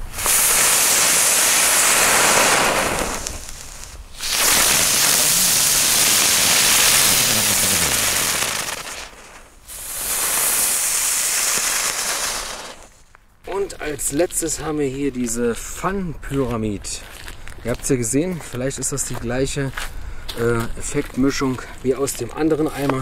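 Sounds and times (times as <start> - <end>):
firework hissing: 0.0 - 13.0.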